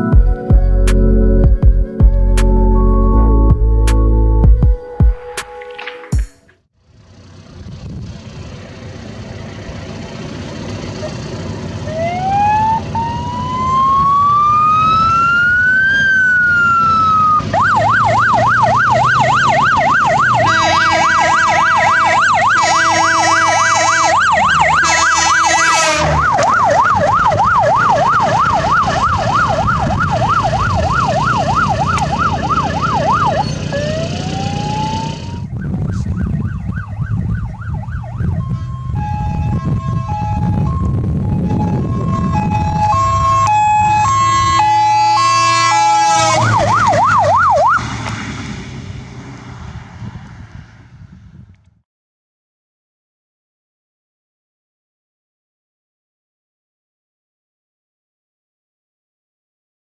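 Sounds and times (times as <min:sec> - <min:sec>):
ambulance siren wailing and yelping: 0:11.8 - 0:48.0
train horn blasts: 0:20.4 - 0:26.2, 0:45.2 - 0:46.6.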